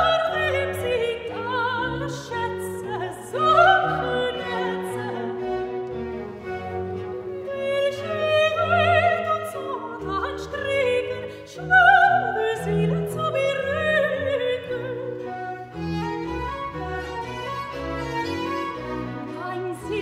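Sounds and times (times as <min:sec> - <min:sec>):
soprano singing with vibrato: 0:00.0 - 0:05.9, 0:07.4 - 0:17.3, 0:18.7 - 0:20.0
recorders and violas playing: 0:00.0 - 0:20.0.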